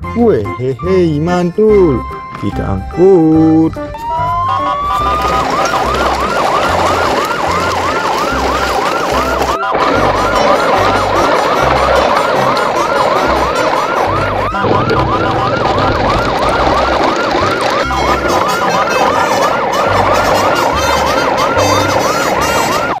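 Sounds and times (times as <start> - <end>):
siren yelping: 3.2 - 23.0
low pulsing bass: 13.3 - 18.5.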